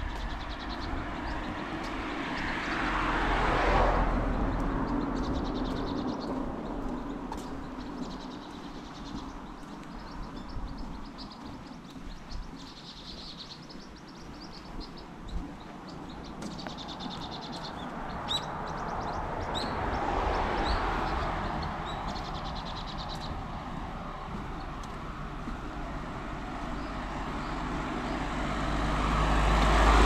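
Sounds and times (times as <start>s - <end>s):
small birds chirping: 0.0s - 3.0s, 3.9s - 30.0s
car passing: 0.0s - 30.0s.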